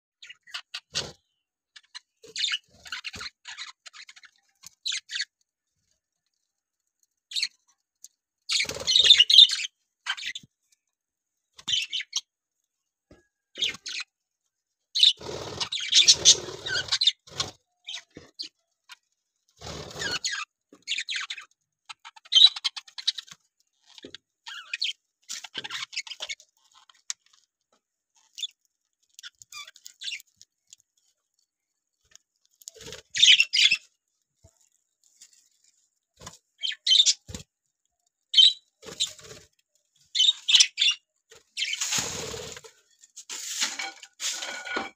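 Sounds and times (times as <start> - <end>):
budgerigars chirping and chattering: 0.2 - 5.4, 7.3 - 7.6, 8.5 - 10.4, 11.6 - 12.3, 13.6 - 14.2, 15.0 - 19.0, 19.6 - 27.1, 29.2 - 30.4, 32.6 - 33.9, 36.6 - 37.5, 38.3 - 39.5, 40.1 - 42.6.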